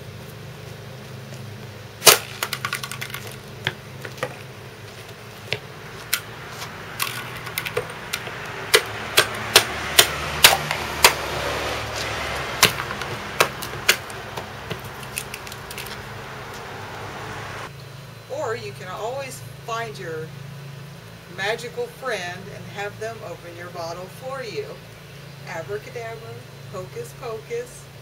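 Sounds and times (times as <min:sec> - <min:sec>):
hammer striking a bottle on concrete: 0:08.7 - 0:11.2.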